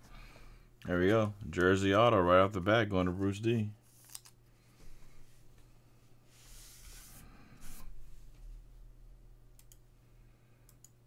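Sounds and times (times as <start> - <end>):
faint clicks: 9.6 - 9.8, 10.6 - 11.0.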